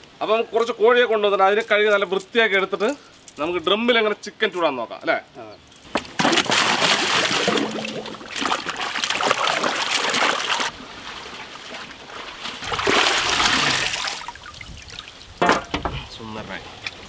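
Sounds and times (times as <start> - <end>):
water splashing in a pot: 6.2 - 10.7, 12.6 - 15.5.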